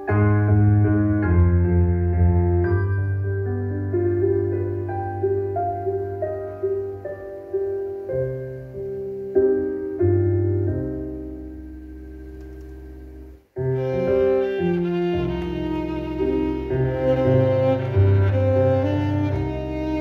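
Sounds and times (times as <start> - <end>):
piano accompaniment: 0.0 - 20.0
violin melody: 13.6 - 20.0.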